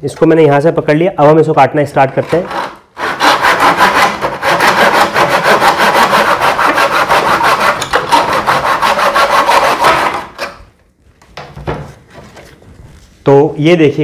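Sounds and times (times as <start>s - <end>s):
hand saw cutting wood: 2.2s - 10.6s.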